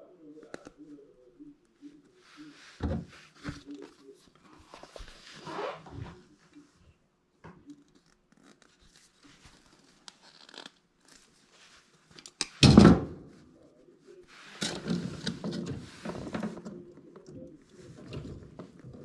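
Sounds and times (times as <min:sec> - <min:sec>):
handling rustle: 0:02.0 - 0:06.3.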